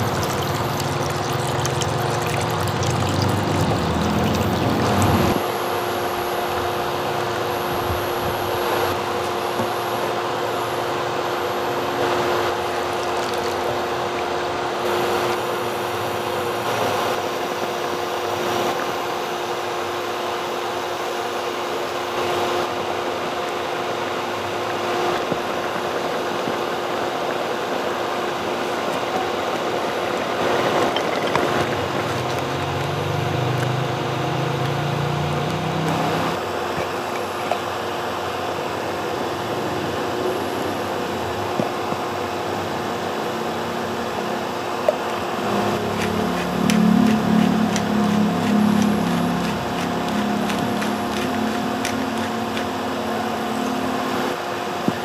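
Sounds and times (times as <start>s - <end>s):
steady mechanical hum: 0.0s - 55.0s
low wavering drone: 45.4s - 54.1s.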